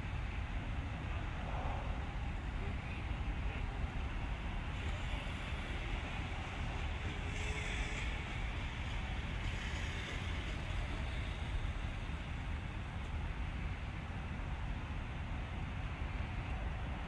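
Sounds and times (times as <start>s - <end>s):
low rumble: 1.1s - 4.0s
hiss: 4.8s - 12.4s.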